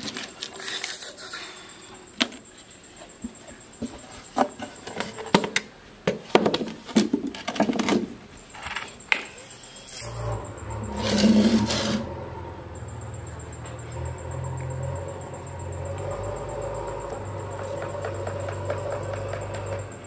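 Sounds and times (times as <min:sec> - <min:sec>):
steady low hum: 0:08.2 - 0:20.0.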